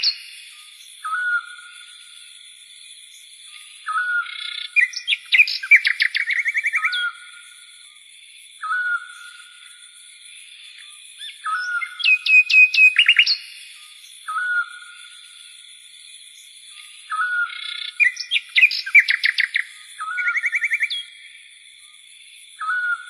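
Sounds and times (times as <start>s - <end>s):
bird-like chirping calls: 0.0s - 0.3s, 3.9s - 7.2s, 11.2s - 13.6s, 17.1s - 21.1s.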